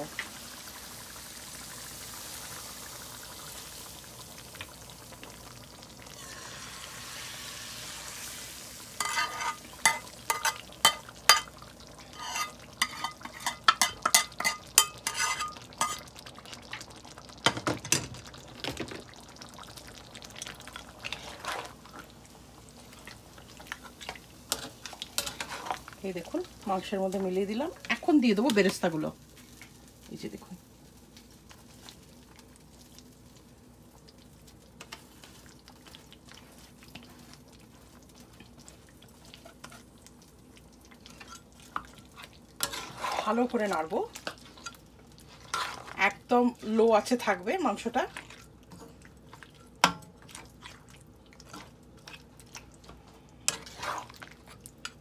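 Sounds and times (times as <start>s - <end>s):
hot oil sizzling: 0.0s - 55.0s
spoon scraping a pan: 9.0s - 16.1s, 21.0s - 22.0s, 23.6s - 26.0s, 34.8s - 40.0s, 41.0s - 46.6s, 48.1s - 55.0s.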